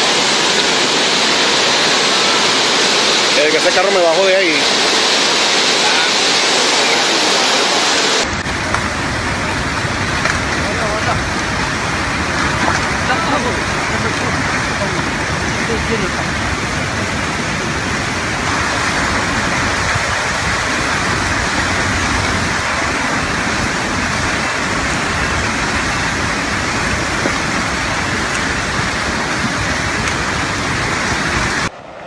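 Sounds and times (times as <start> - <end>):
flood torrent rushing: 0.0 - 32.0.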